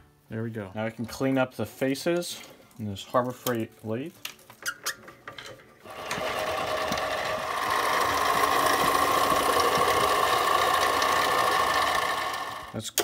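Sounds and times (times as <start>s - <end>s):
metal lathe motor whining: 5.9s - 12.8s.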